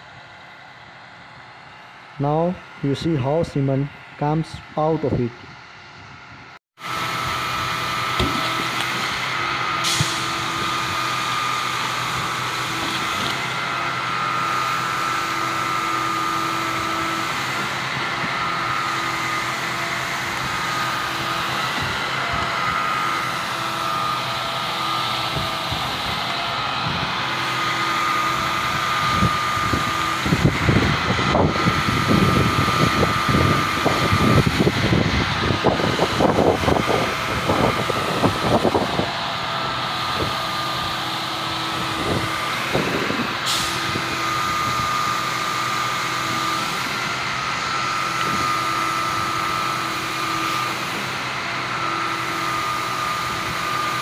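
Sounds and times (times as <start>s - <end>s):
concrete pump drone: 0.0s - 54.0s.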